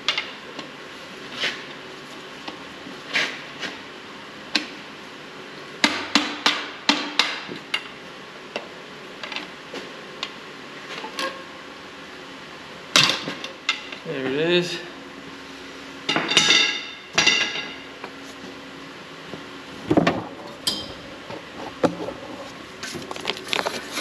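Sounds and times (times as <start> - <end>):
metal tools tapping on metal: 20.6 - 21.0.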